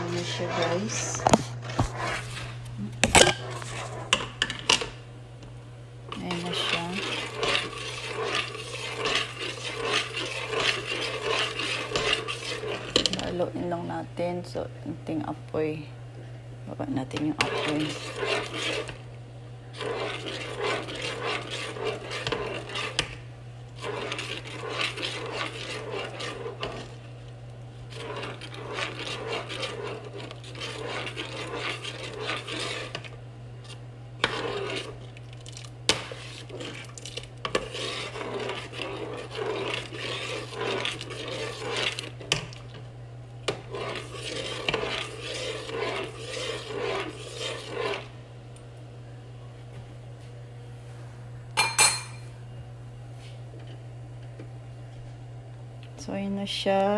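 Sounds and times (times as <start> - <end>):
spoon scraping metal saucepan: 0.0 - 4.9, 6.1 - 13.5, 17.0 - 19.0, 19.7 - 23.2, 23.8 - 27.0, 27.9 - 42.6, 43.4 - 48.1, 51.6 - 52.3.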